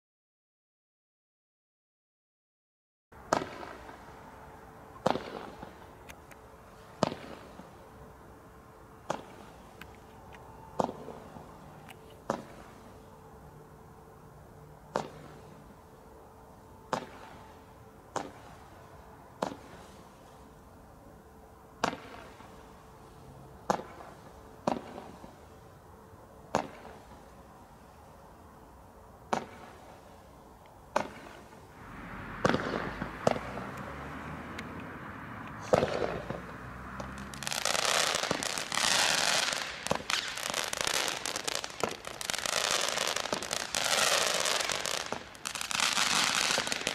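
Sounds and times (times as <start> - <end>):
firework shots firing: 3.2 - 4.0, 5.0 - 6.0, 7.0 - 7.6, 9.0 - 9.5, 10.8 - 11.2, 12.2 - 12.7, 14.9 - 15.4, 16.9 - 17.4, 18.1 - 18.6, 19.4 - 19.8, 21.8 - 22.5, 23.6 - 25.3, 26.5 - 27.1, 29.3 - 30.0, 30.9 - 34.0, 35.6 - 46.9
firework stars crackling: 3.2 - 8.3, 9.0 - 13.3, 14.9 - 15.8, 16.9 - 20.8, 21.8 - 25.8, 26.5 - 28.4, 29.2 - 46.9.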